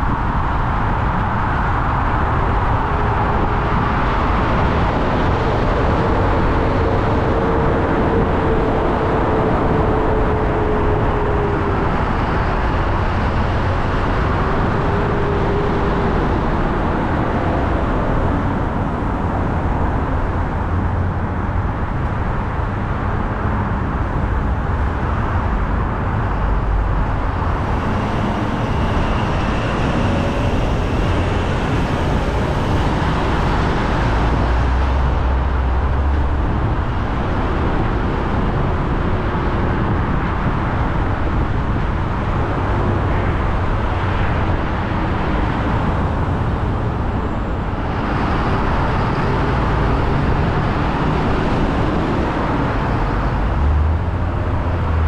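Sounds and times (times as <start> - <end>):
car driving on road: 0.0 - 55.0.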